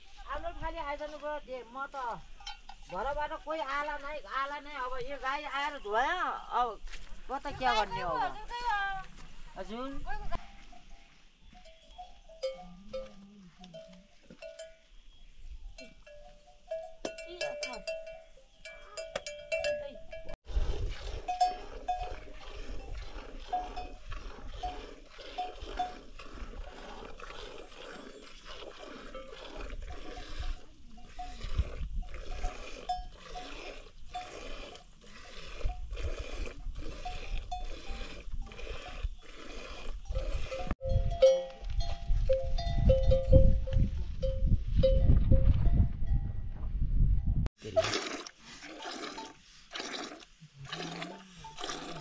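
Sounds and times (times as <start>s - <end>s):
livestock bells clinking: 2.2s - 3.4s, 10.4s - 20.4s, 40.1s - 46.3s
milk squirting into a pail: 47.6s - 52.0s.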